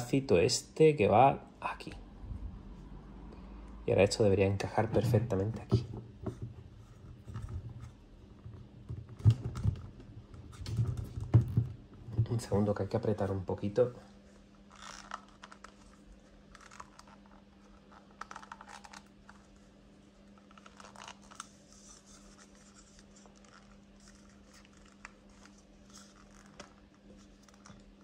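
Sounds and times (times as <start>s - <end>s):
plastic parts scratching and clicking: 14.7s - 19.7s, 20.3s - 28.0s.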